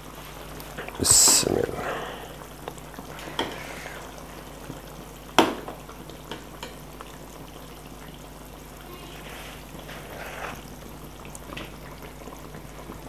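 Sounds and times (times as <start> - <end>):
gravy bubbling: 0.8 - 6.2
ladle stirring thick gravy: 9.2 - 10.7.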